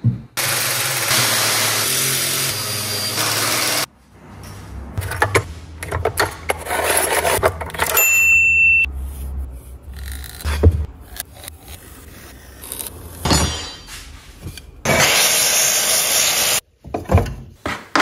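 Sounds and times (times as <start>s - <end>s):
power tool running: 0.4s - 3.9s, 14.9s - 16.6s.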